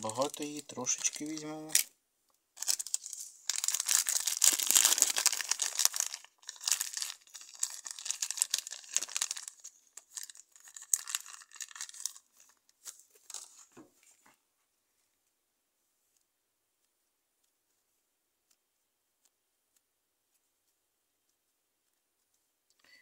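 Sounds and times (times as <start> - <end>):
plastic bag crinkling: 0.0 - 1.9, 2.6 - 13.7.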